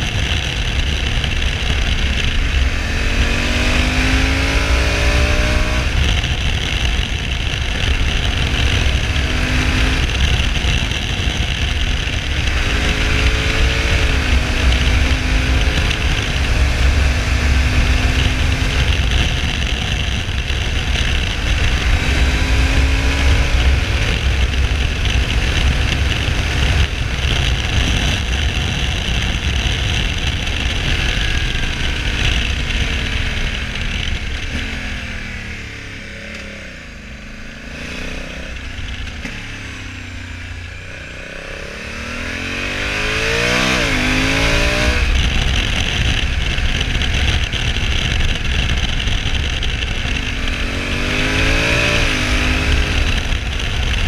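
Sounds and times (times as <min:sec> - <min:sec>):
motorcycle engine revving: 0:00.0 - 0:54.0
wind rush over microphone: 0:00.0 - 0:54.0.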